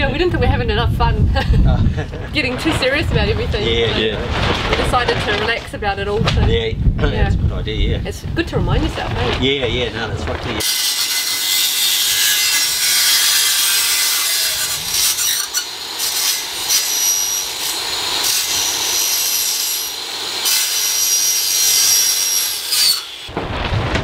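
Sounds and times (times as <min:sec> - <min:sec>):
circular saw cutting metal tube: 0:10.6 - 0:23.3.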